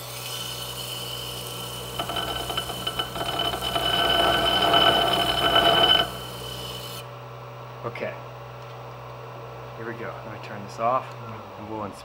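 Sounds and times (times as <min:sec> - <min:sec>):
steel rasping on abrasive disc: 0:00.2 - 0:07.0
electric disc sander humming: 0:01.7 - 0:06.8.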